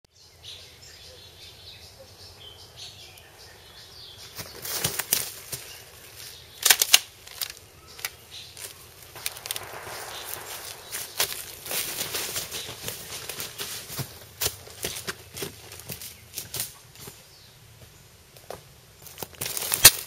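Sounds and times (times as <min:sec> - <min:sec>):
leaves and brush crunching: 0:04.2 - 0:20.0
sharp crackles: 0:04.4 - 0:17.2, 0:19.0 - 0:20.0
faint bird chirps: 0:07.7 - 0:12.9.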